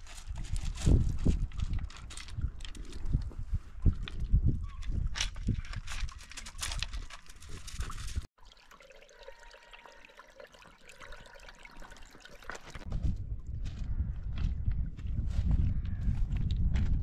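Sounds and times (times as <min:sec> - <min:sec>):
footsteps crunching on pebbles: 0:00.0 - 0:02.5, 0:12.5 - 0:17.0
stream trickling over stones: 0:05.0 - 0:12.9.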